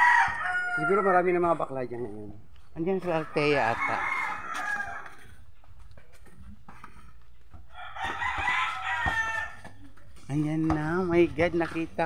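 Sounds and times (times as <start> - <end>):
rooster crowing: 0.0 - 1.3, 3.2 - 5.4, 7.7 - 9.8
basketball dribbling thuds: 5.6 - 12.0.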